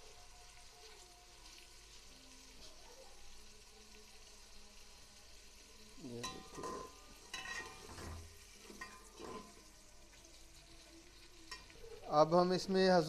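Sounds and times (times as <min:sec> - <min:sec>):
chicken sizzling in oil: 0:00.0 - 0:13.0
spoon scraping metal pot: 0:06.2 - 0:09.7.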